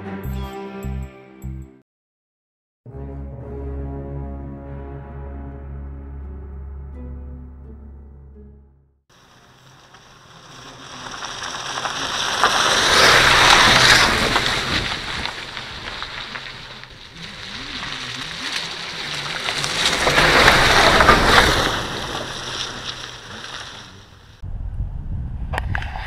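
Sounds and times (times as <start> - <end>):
tyres crunching on gravel: 9.1 - 24.4.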